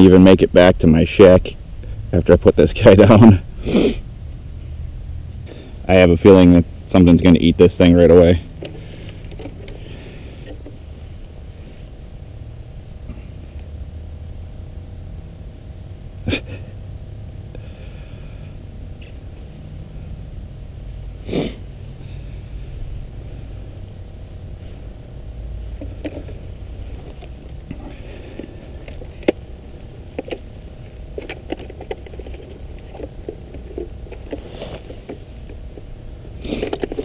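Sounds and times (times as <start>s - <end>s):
low rumble: 0.7s - 5.9s.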